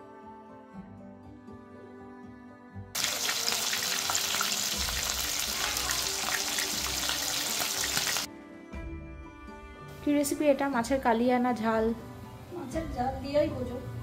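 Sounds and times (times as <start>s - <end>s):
soft background music: 0.0s - 14.0s
fish sizzling in hot oil: 3.0s - 8.3s.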